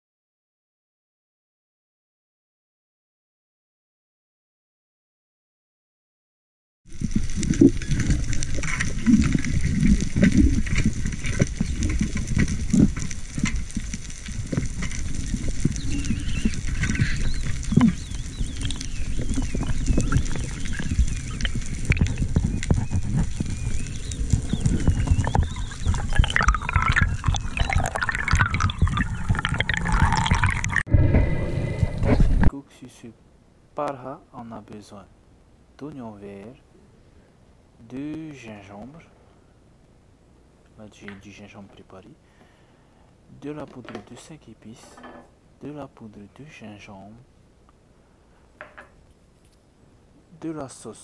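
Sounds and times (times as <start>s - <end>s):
muffled rumble of water: 6.9s - 32.5s.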